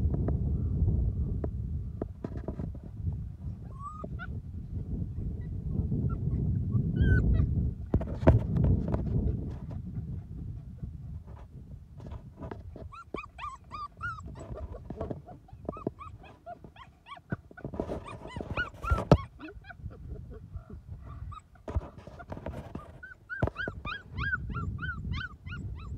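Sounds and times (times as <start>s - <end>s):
puppies whimpering and yipping: 3.6s - 4.4s, 5.4s - 7.5s, 12.8s - 25.9s.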